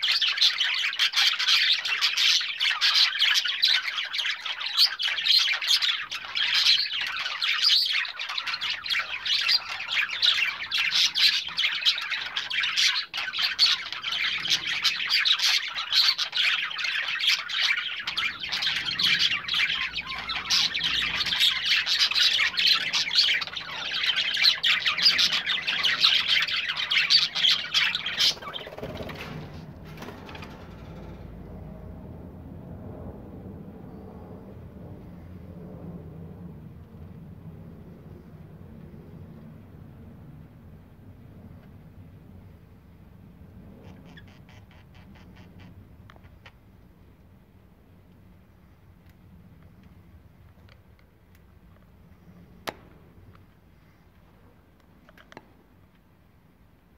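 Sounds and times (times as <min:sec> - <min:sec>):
budgerigars chattering: 0:00.0 - 0:29.4, 0:43.8 - 0:46.5
faint low hum: 0:00.2 - 0:56.9.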